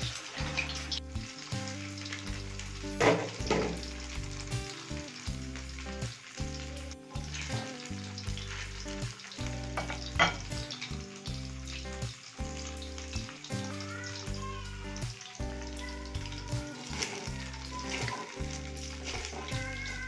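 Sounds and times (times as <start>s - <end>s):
chicken sizzling in hot oil: 0.0s - 20.0s
wooden spatula scraping wok: 16.8s - 20.0s.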